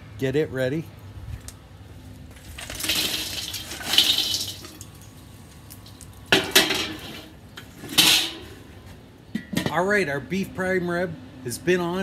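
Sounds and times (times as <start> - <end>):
charcoal rattling into grill: 2.4 - 5.1, 5.7 - 9.8
metal clanks: 6.3 - 8.6.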